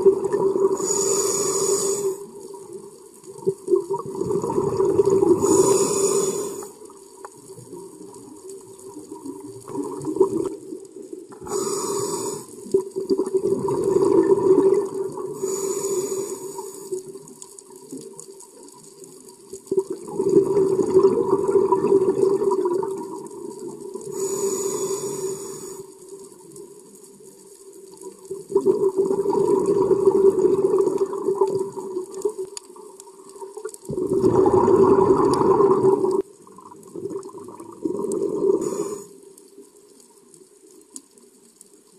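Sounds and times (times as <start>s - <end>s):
rumbling bubble exhales: 0.0s - 2.0s, 3.3s - 6.7s, 9.2s - 10.7s, 11.3s - 15.6s, 19.7s - 23.3s, 28.4s - 32.3s, 33.6s - 39.1s
hissing regulator inhales: 0.7s - 2.3s, 5.3s - 6.8s, 11.4s - 12.6s, 15.4s - 17.0s, 24.1s - 26.0s, 38.5s - 39.2s.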